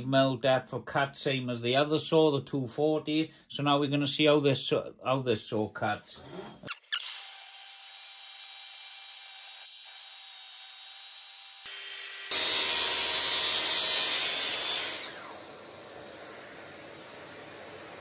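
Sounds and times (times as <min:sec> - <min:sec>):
circular saw cutting through wood: 0:06.4 - 0:18.0
saw blade winding down: 0:06.7 - 0:18.0.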